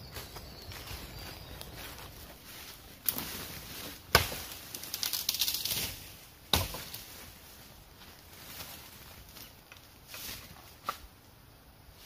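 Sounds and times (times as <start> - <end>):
footsteps crunching leaf litter: 0.0 - 6.2
small crackles: 4.5 - 6.0.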